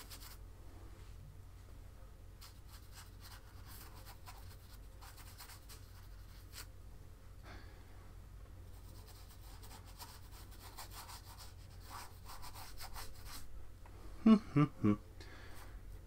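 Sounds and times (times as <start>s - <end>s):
paintbrush scratching on canvas: 0.0s - 0.4s, 2.4s - 6.7s, 8.7s - 13.5s
low steady hum: 0.0s - 16.0s.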